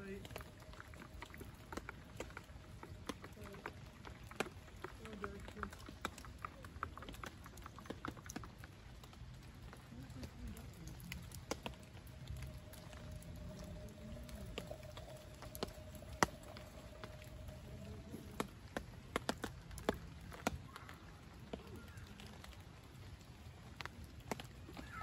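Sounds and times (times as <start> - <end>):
faint steady tone: 9.9 - 19.2.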